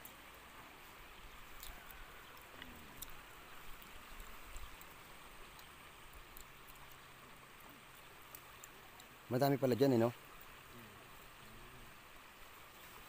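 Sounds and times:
low steady hiss: 0.0s - 13.0s
small ticks: 1.2s - 9.2s.

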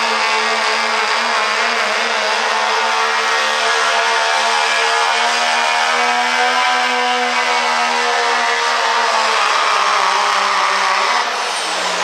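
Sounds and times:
diesel truck engine at high revs: 0.0s - 12.0s.

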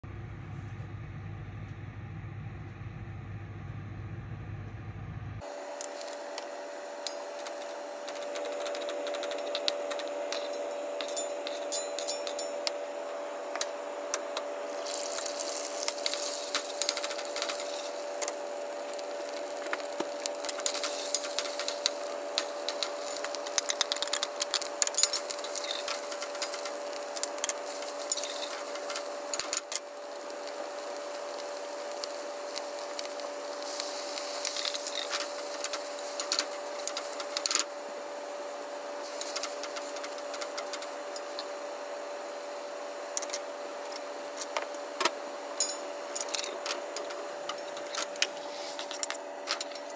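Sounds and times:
steady hum: 0.0s - 49.9s
food sizzling in a wok: 14.5s - 46.1s, 48.3s - 48.9s.

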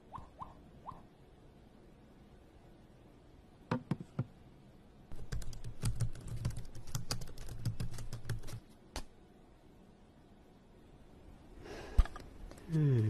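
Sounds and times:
laptop keyboard typing: 5.1s - 9.1s.

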